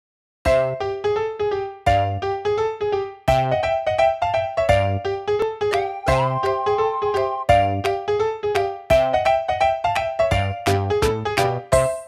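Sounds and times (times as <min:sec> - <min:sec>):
tune of ringing notes over beat: 0:05.7 - 0:08.0.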